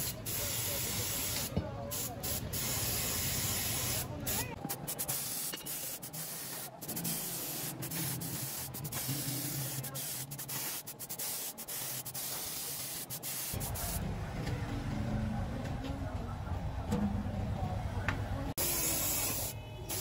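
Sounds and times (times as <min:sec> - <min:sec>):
spray gun hissing: 0:00.0 - 0:14.0, 0:18.6 - 0:20.0.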